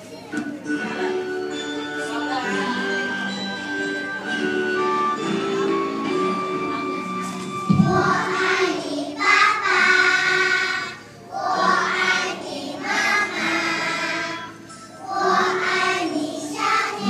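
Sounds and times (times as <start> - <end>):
backing music: 0.0 - 17.0
thump: 7.7 - 8.1
young children singing: 7.7 - 17.0.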